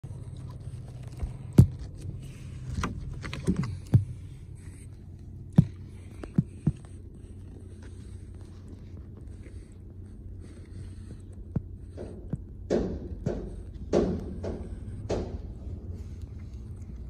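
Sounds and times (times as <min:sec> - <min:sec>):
low steady hum: 0:00.0 - 0:17.0
sharp knocks and bangs on truck bed: 0:12.0 - 0:15.6.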